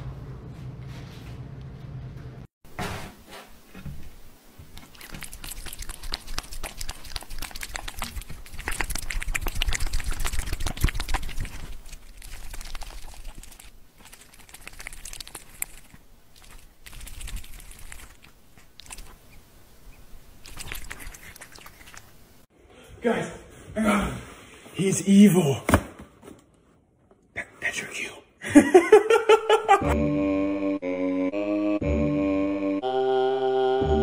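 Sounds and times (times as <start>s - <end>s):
cat licking and chewing: 4.6s - 22.3s.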